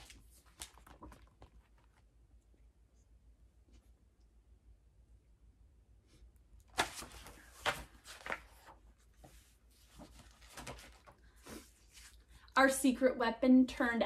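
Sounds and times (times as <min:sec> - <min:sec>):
book pages turning: 0:00.0 - 0:02.1, 0:06.7 - 0:12.3.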